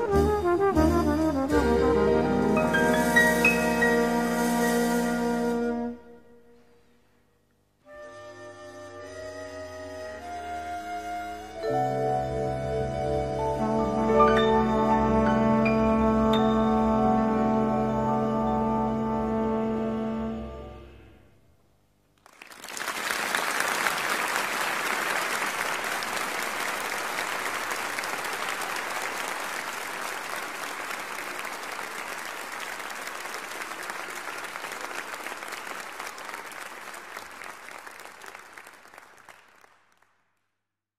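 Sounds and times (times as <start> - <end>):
audience applauding: 22.2 - 40.4.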